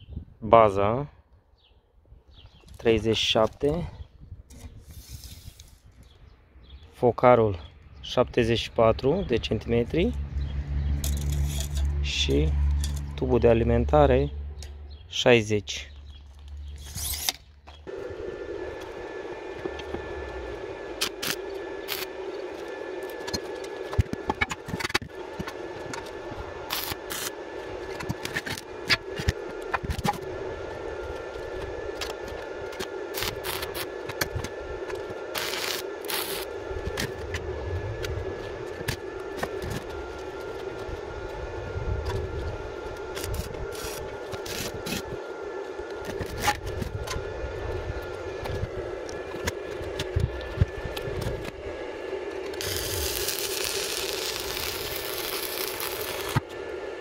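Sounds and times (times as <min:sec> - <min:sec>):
steady hum: 0:07.8 - 0:57.0
welding arc crackling hiss: 0:19.8 - 0:30.2, 0:31.1 - 0:37.3, 0:42.8 - 0:45.2, 0:52.4 - 0:56.6.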